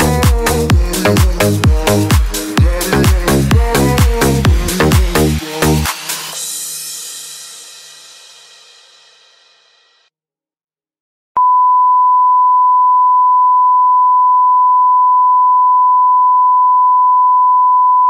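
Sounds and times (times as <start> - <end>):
electronic music: 0.0 - 7.3.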